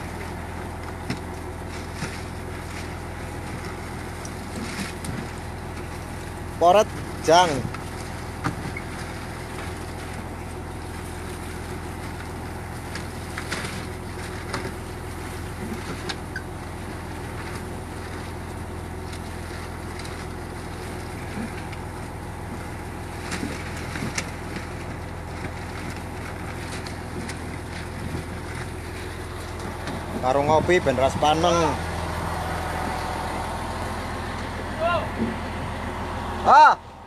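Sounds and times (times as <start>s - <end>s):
boat engine droning: 0.0s - 37.0s
net and floats clicking: 17.3s - 30.2s.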